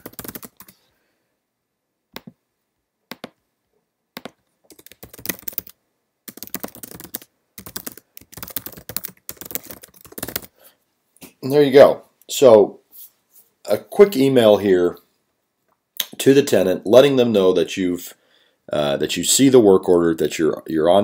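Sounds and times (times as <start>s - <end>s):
computer keyboard typing: 0.0s - 0.8s, 3.1s - 3.4s, 4.2s - 10.5s.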